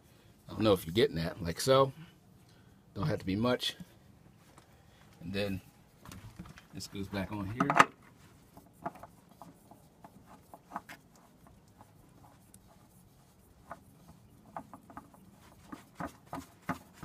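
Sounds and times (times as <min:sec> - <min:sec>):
fuel filter rubbing and clicking: 0:06.1 - 0:17.0
sweatshirt brushing microphone: 0:06.7 - 0:17.0.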